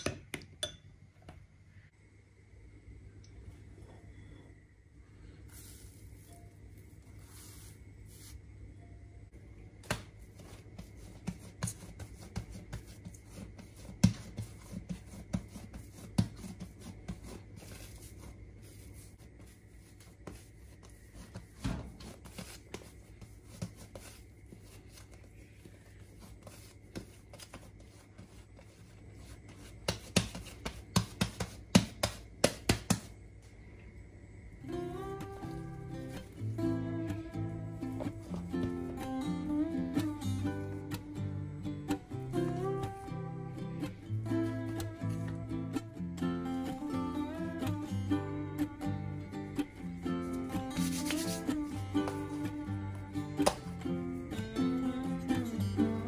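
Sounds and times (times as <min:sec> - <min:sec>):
faint low hum: 0:00.0 - 0:56.0
hands kneading dough: 0:09.8 - 0:33.6, 0:49.6 - 0:54.6.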